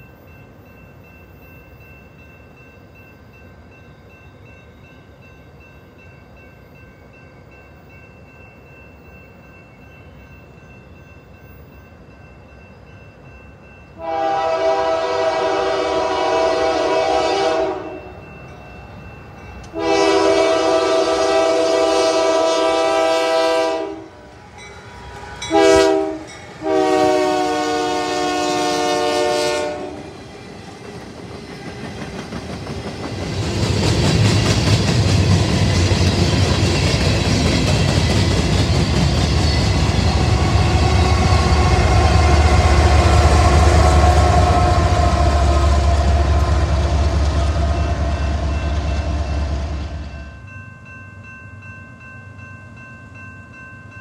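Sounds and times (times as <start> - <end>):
locomotive air horn blasts: 14.0 - 18.1, 19.7 - 24.1, 25.5 - 30.0, 40.3 - 49.2
wheels rattling on rail: 24.1 - 50.6
locomotive engine rumble: 30.0 - 50.2.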